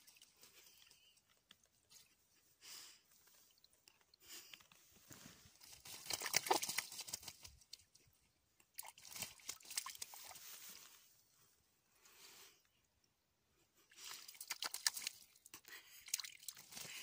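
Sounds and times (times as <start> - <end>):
bird splashing in puddle: 5.6 - 8.0, 8.7 - 10.7, 13.9 - 17.0.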